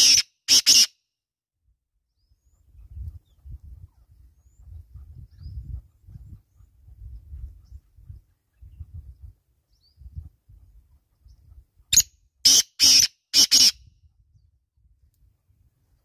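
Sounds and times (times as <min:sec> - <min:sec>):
bird calling harsh notes: 0:00.0 - 0:01.0, 0:12.0 - 0:13.8.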